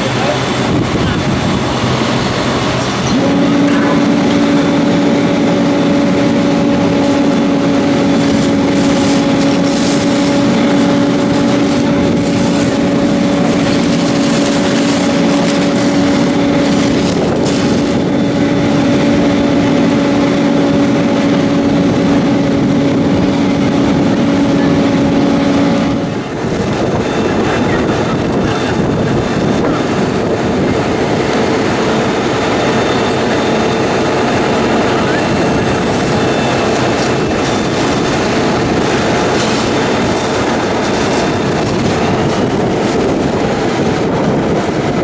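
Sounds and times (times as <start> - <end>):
pump engine humming: 0.0 - 45.0
hose water spraying: 1.6 - 19.6, 35.7 - 44.6.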